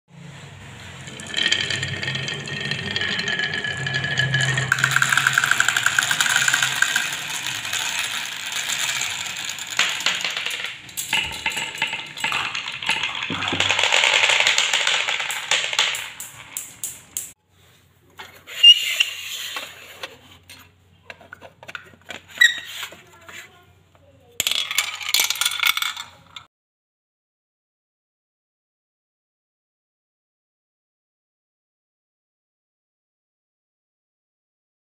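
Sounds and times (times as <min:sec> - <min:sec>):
marbles clattering down tracks: 0:01.0 - 0:17.4, 0:24.4 - 0:26.5.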